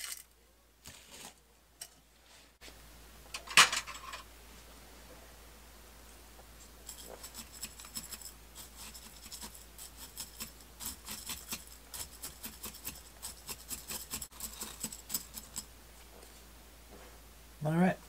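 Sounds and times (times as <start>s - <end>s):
metal rod scratching gritty soil: 6.8s - 15.7s.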